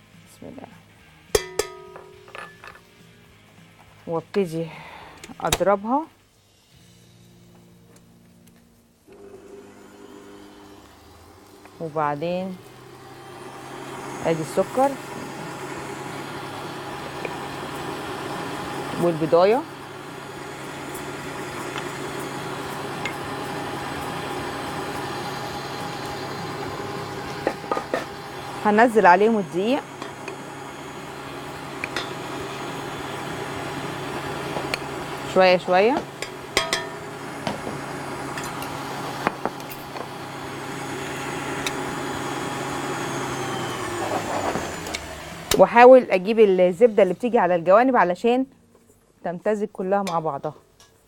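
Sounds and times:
stand mixer motor humming: 0:09.1 - 0:45.6.

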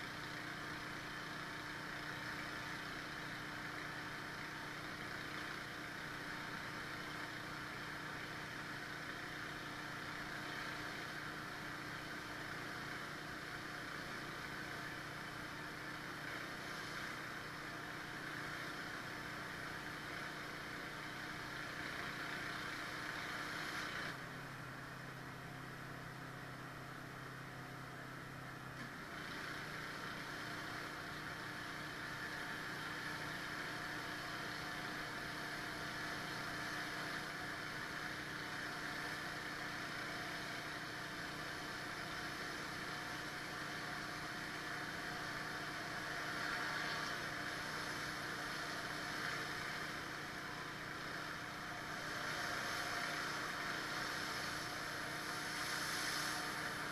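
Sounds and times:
pressure washer engine running: 0:00.0 - 0:24.5, 0:28.3 - 0:56.9
spray hissing on concrete: 0:52.3 - 0:56.9.

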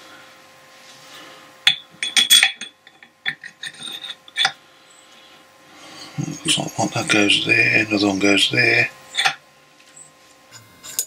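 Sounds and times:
steel gears clicking and clinking: 0:10.5 - 0:11.0.

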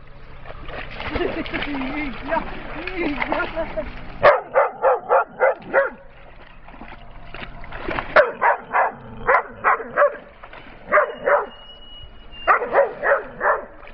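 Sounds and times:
dog barking: 0:04.2 - 0:06.0, 0:08.2 - 0:10.3, 0:10.9 - 0:11.6, 0:12.5 - 0:13.8.

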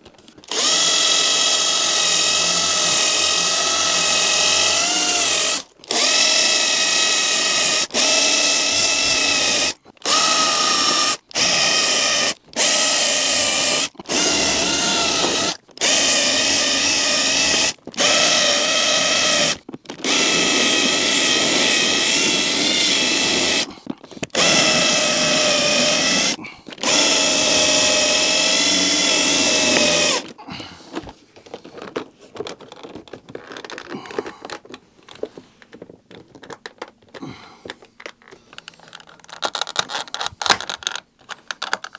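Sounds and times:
cordless drill drilling plastic: 0:00.3 - 0:30.6
plastic trim clicking and rattling: 0:29.7 - 0:41.9.

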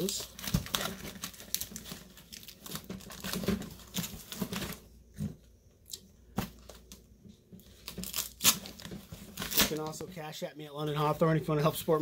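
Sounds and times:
packaging rustling and crinkling: 0:00.0 - 0:05.4, 0:06.4 - 0:10.1.

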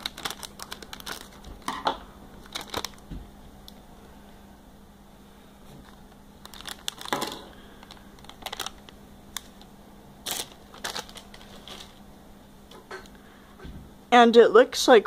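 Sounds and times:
plastic bag crinkling and tearing: 0:00.0 - 0:03.1, 0:05.8 - 0:12.0.

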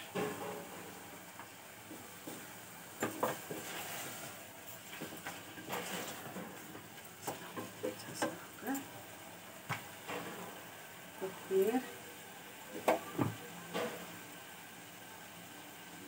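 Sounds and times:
spatula scraping frying food: 0:00.0 - 0:11.9.

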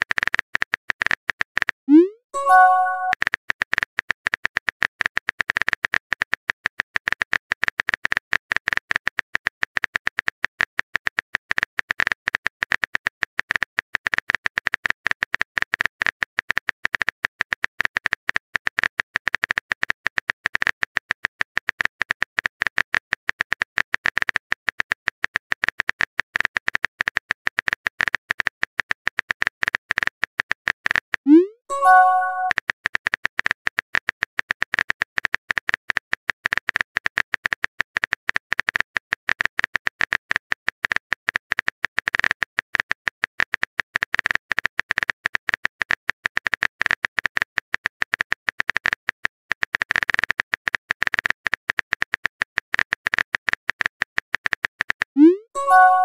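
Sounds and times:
rising pop-like chime: 0:01.9 - 0:03.1, 0:31.3 - 0:32.5, 0:55.2 - 0:56.0
phone keyboard typing clicks: 0:02.4 - 0:03.2, 0:31.3 - 0:32.5, 0:55.3 - 0:56.0.

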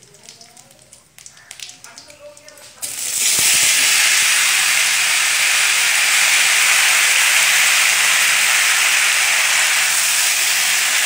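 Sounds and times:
tomatoes sizzling in hot oil: 0:02.8 - 0:11.0.

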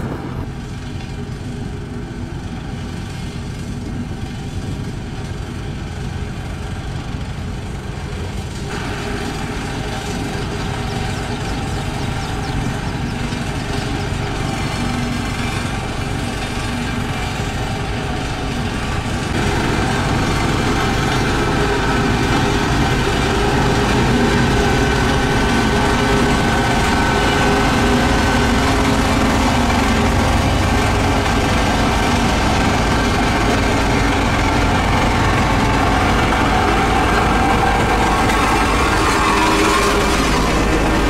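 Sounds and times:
road roller diesel engine: 0:00.0 - 0:41.0.

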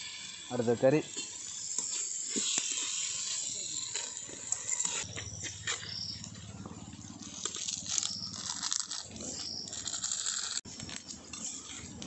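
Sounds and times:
meat sizzling in a pot: 0:00.0 - 0:05.1.

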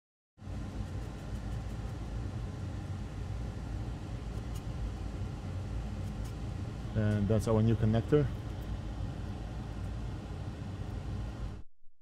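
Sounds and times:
air noise: 0:00.4 - 0:11.7
steady low hum: 0:00.4 - 0:11.7.

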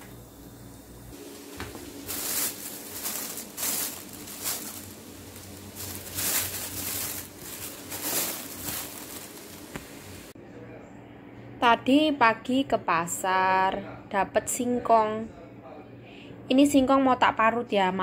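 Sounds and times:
plastic bags rustling: 0:01.1 - 0:10.4.

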